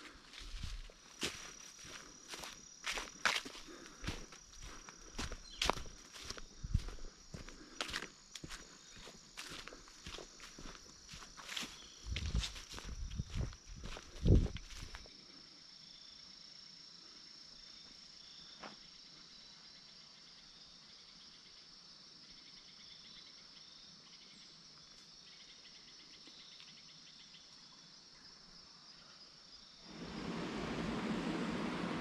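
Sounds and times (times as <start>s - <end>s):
crickets trilling: 0.0s - 32.0s
loud rushing noise: 29.9s - 32.0s.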